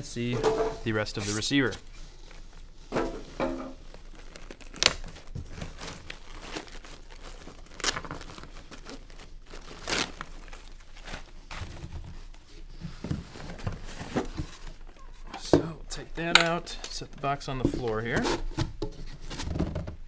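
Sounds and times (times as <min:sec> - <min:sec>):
foam packing crinkling and rustling: 0:00.9 - 0:15.2.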